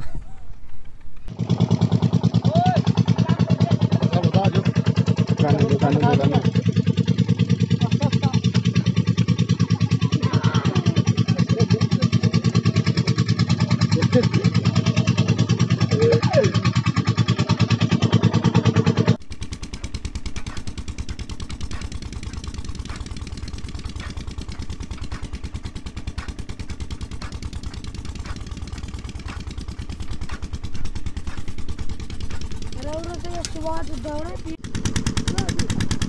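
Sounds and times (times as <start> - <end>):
motor throbbing: 1.2 - 36.0
blade chopping straw with clicks: 19.5 - 36.0.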